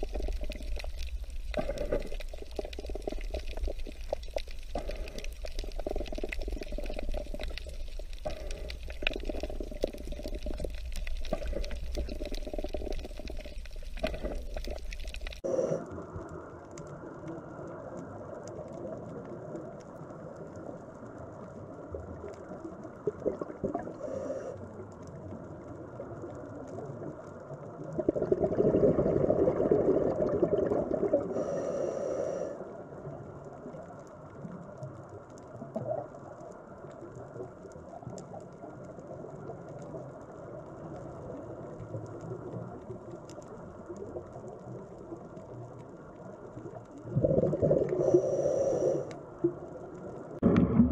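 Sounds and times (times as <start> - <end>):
rush of bubbling: 0.0 - 15.8, 22.6 - 24.4, 27.8 - 32.4, 44.0 - 50.9
muffled underwater water wash: 0.0 - 50.9.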